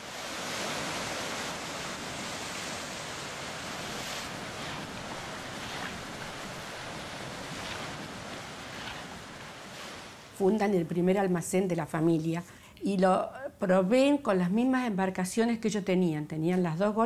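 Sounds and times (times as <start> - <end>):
waves washing: 0.0 - 11.4
wind: 0.0 - 17.0.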